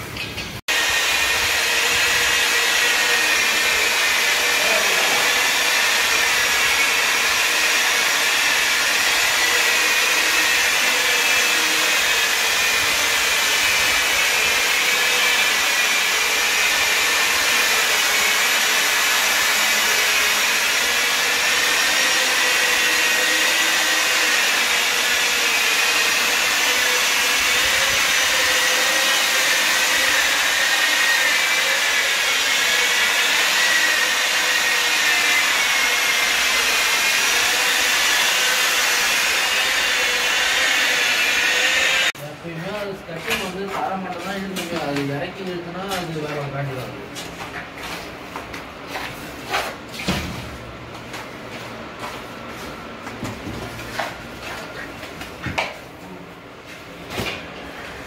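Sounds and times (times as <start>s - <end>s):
floor polisher motor whine: 0.7s - 42.2s.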